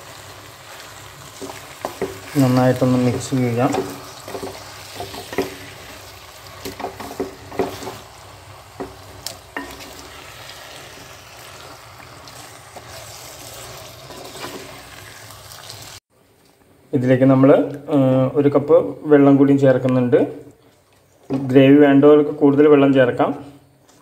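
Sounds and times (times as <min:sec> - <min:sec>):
food sizzling in pot: 0:00.0 - 0:16.1
spatula knocking and scraping pot: 0:01.4 - 0:02.4, 0:03.1 - 0:06.0, 0:06.6 - 0:08.1, 0:08.7 - 0:10.1, 0:12.7 - 0:14.9.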